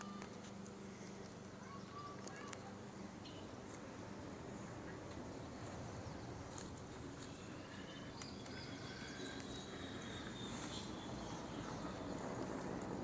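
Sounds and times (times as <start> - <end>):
distant birds chirping: 4.5 - 13.0.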